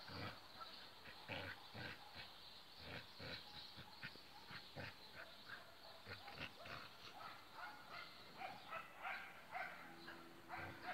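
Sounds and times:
dogs yipping and barking: 0:03.3 - 0:10.9.

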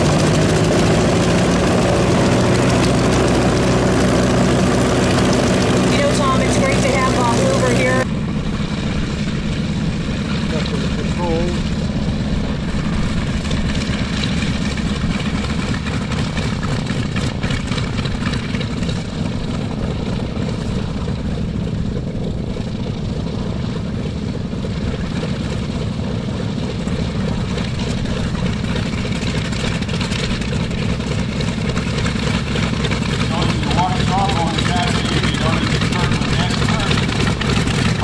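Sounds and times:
radial aircraft engine running: 0:00.0 - 0:38.0.

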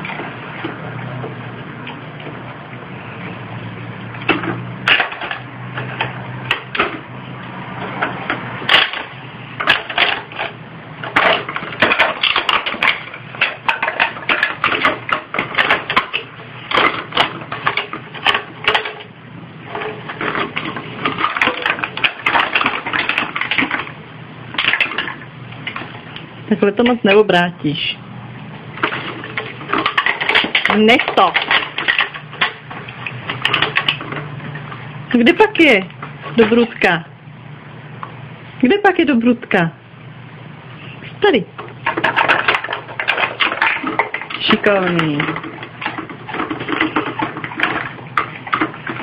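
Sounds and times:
plastic bottles clattering: 0:04.1 - 0:19.1, 0:19.7 - 0:26.2, 0:28.7 - 0:36.9, 0:41.8 - 0:49.0.

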